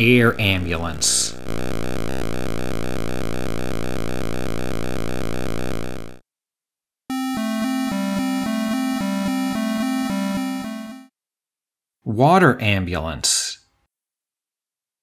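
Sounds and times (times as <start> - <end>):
chiptune music: 1.3 - 6.2, 7.1 - 11.1
synthesized helicopter rotor buzz: 1.3 - 6.2.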